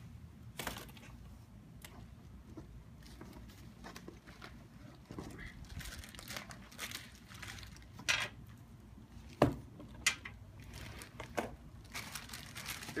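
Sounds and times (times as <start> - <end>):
plastic bag crinkling: 5.6 - 8.1, 10.5 - 13.0.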